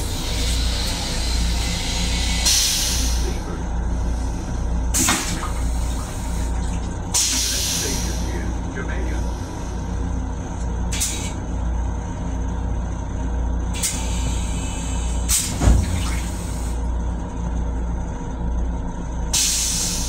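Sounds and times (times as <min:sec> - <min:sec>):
air hissing: 0:00.0 - 0:03.5, 0:04.1 - 0:08.5, 0:13.7 - 0:16.8, 0:19.3 - 0:20.0
railcar rumble: 0:00.0 - 0:20.0.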